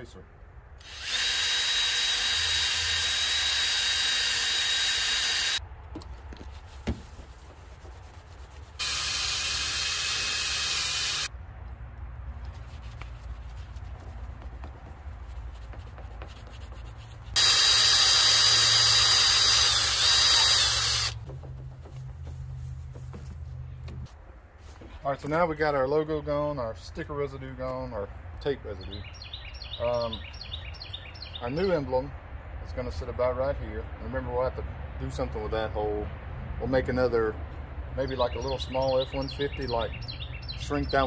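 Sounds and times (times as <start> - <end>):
drill whining: 0.8 - 5.6, 8.8 - 11.3, 17.4 - 21.2.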